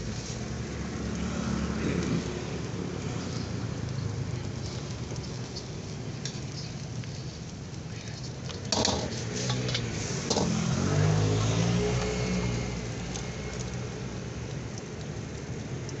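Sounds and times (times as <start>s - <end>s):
vehicle engine passing by: 0.0s - 5.6s, 8.9s - 14.4s.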